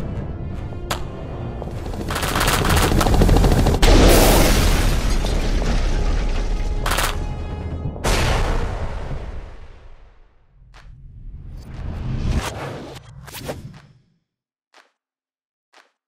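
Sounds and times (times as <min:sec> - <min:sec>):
music: 0:00.0 - 0:03.8, 0:05.6 - 0:13.5
machine-gun bursts: 0:02.0 - 0:03.8.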